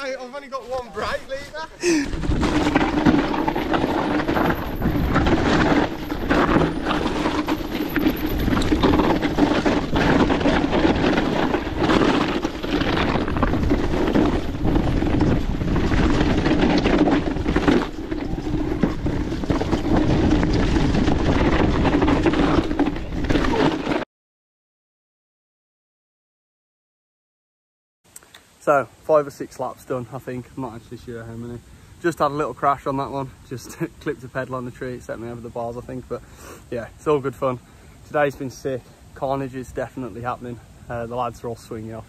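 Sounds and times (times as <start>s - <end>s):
bike rattling and knocking: 0.0s - 24.0s
bike tyre rumble on trail: 0.0s - 24.0s, 29.1s - 42.0s
wind buffeting microphone: 1.0s - 23.6s.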